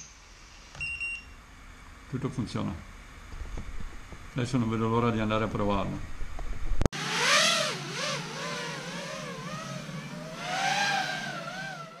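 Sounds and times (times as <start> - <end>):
low hum: 5.4 - 12.0
drone motors whining: 7.0 - 12.0.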